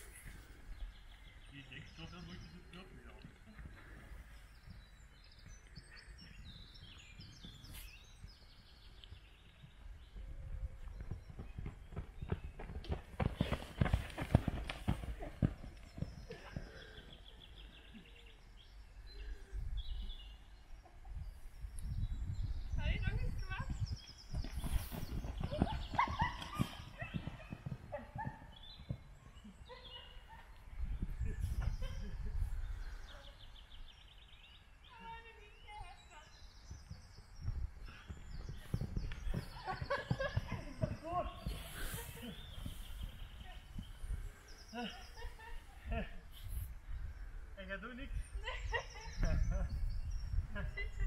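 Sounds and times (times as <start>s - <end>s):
small birds chirping: 0.0s - 51.0s
horse hoofbeats on sand: 6.6s - 17.4s, 23.3s - 29.8s, 36.3s - 43.9s.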